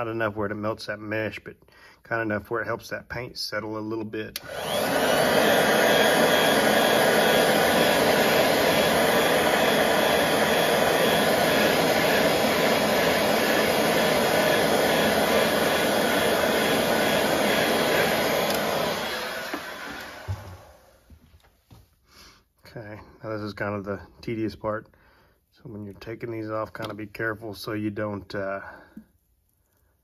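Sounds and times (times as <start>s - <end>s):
heat gun blowing: 4.4s - 21.2s.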